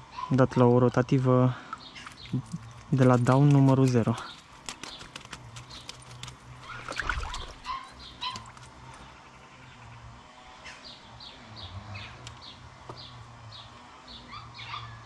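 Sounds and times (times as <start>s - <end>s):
small bird calling: 4.0s - 15.0s.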